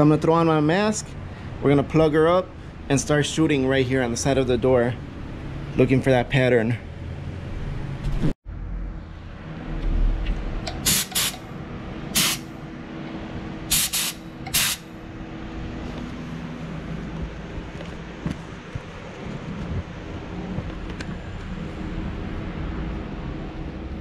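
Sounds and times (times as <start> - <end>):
steady low hum: 0.8 - 24.0
spray gun hissing: 10.8 - 11.4, 12.2 - 12.5, 13.7 - 14.9.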